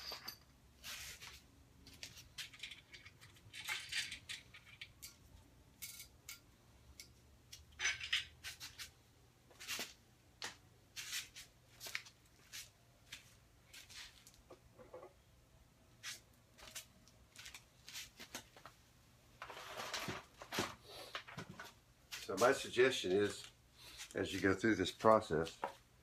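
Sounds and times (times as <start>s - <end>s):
metal bearing caps and bolts clinking: 0.0s - 0.6s, 1.9s - 8.6s.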